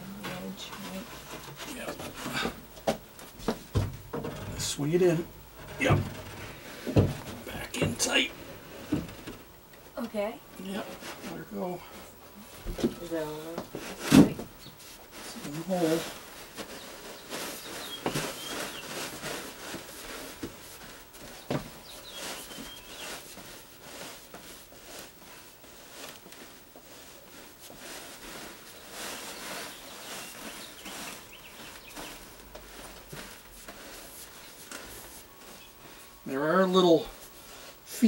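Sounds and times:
socked feet shuffling on shower base: 12.6 - 38.0.

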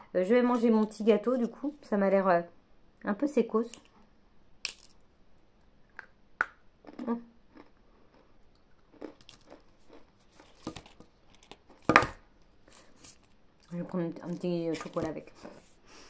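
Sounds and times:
person chewing dry cake: 6.8 - 11.9.

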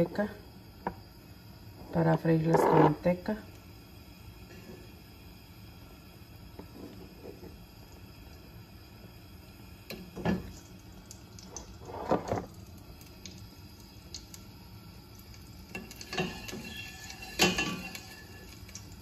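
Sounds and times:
low room noise: 0.0 - 19.0
kitchen utensils knocking and clattering: 15.8 - 18.5.

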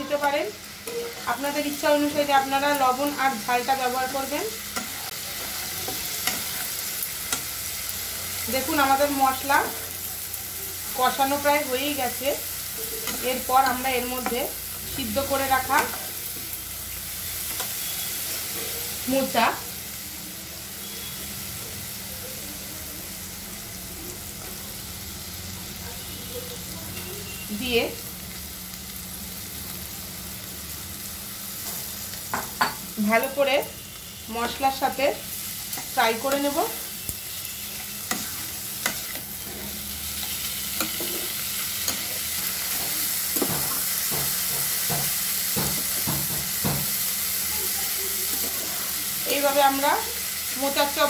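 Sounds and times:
masala sizzling in oil: 0.0 - 51.0
spatula scraping a pan: 35.7 - 46.4.

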